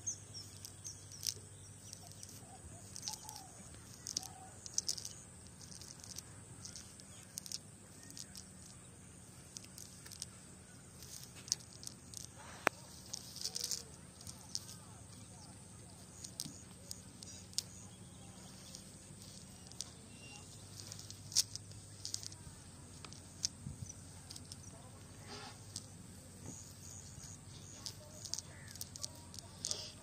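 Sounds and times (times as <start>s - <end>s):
cast net clicks and rustles: 0.4s - 30.0s.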